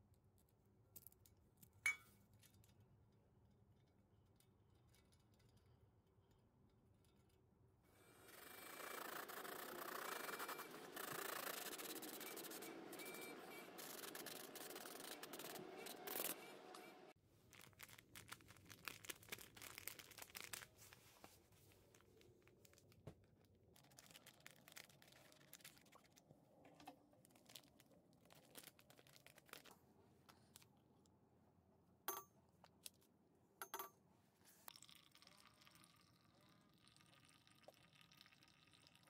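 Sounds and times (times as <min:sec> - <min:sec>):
metal spoon clinking: 0:01.9 - 0:02.1, 0:33.6 - 0:33.9
foil packet crinkling: 0:17.4 - 0:21.1, 0:21.8 - 0:26.0, 0:27.2 - 0:29.8.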